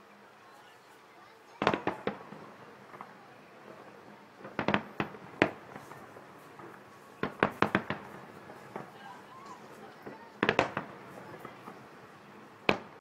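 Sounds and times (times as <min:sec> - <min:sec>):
firework shells bursting: 0:01.6 - 0:13.0.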